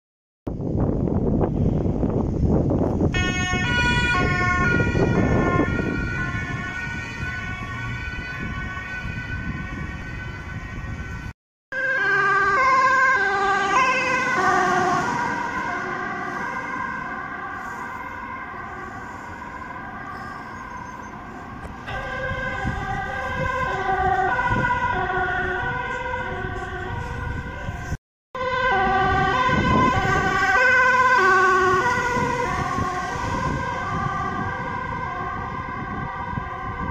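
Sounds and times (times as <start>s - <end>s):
traffic rumble: 0.5s - 36.9s
two-tone ambulance sirens: 1.5s - 36.9s.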